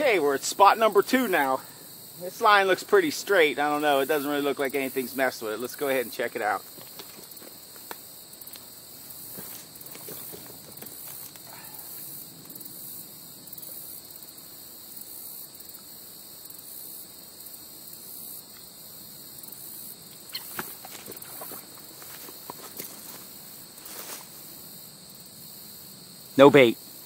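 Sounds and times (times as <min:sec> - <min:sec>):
high insect chorus: 0:00.0 - 0:27.0
faint rustling: 0:09.0 - 0:12.1, 0:20.4 - 0:24.5.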